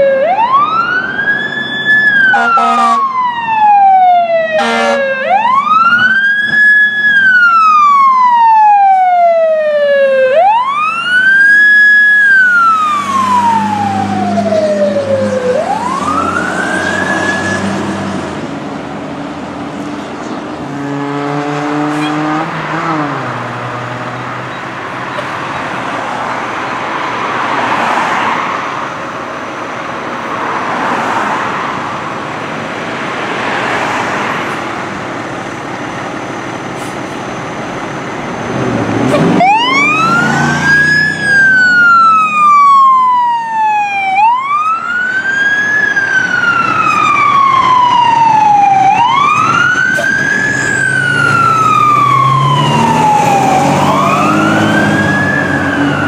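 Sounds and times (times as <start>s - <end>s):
fire truck siren wailing: 0.0s - 19.0s, 20.2s - 56.0s
passing road traffic: 0.0s - 56.0s
truck engine: 0.0s - 56.0s
horn blast: 2.3s - 3.1s, 4.6s - 5.1s.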